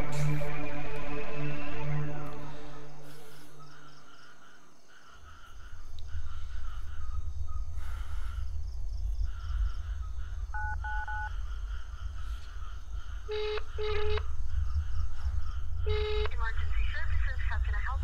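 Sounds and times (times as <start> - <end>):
low rumble: 5.6 - 18.0
phone keypad beeps: 10.6 - 11.3, 13.4 - 14.2
phone ringback tone: 10.6 - 11.3, 13.3 - 14.2.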